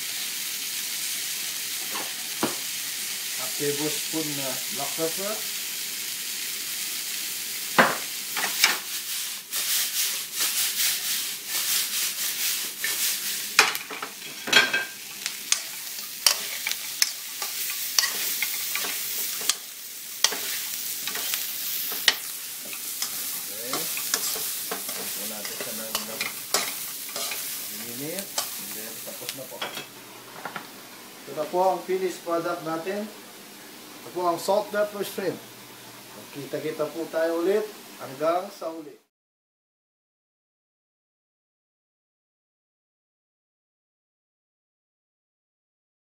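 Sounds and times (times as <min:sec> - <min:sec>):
oil sizzling: 0:00.0 - 0:38.9
metal spatula scraping wok: 0:09.5 - 0:28.8.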